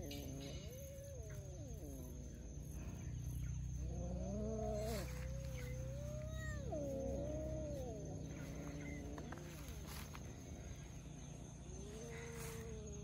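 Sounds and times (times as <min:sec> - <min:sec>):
kittens meowing: 0:00.0 - 0:11.0, 0:11.6 - 0:13.0.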